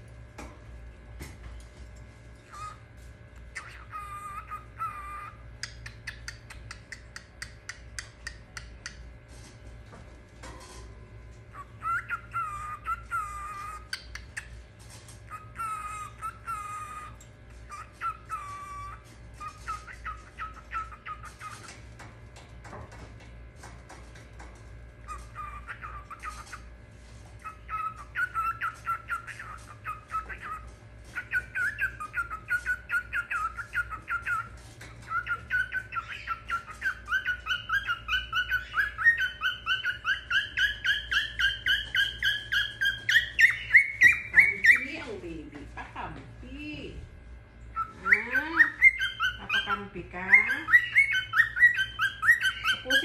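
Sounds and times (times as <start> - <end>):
cockatiel chirping: 3.5 - 8.4, 11.5 - 14.5, 15.3 - 21.8, 25.0 - 26.7, 27.4 - 45.0, 47.7 - 53.0.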